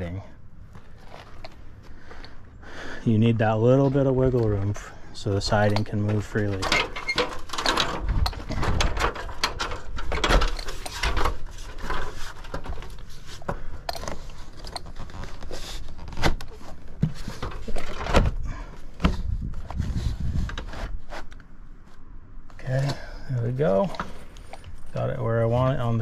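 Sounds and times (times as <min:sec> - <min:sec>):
plastic clacks and knocks: 0:05.7 - 0:15.1
plastic siding rubbing and sliding: 0:06.0 - 0:22.0.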